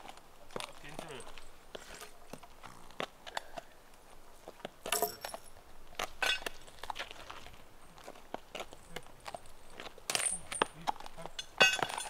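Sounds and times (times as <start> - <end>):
metal chain clinking and rattling: 0.6 - 1.5, 4.8 - 5.6, 6.2 - 7.5, 8.6 - 12.0.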